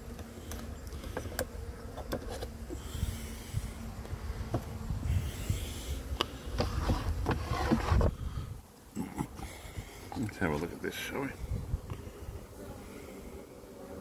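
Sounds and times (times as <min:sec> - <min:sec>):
honeybee humming: 0:00.0 - 0:14.0
wind buffeting microphone: 0:02.8 - 0:08.7, 0:11.3 - 0:12.4.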